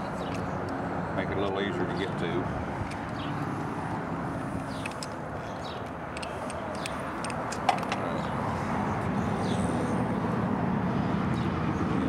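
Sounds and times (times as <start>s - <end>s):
outdoor background hum: 0.0s - 12.0s
light clicks and taps of metal: 4.6s - 8.0s.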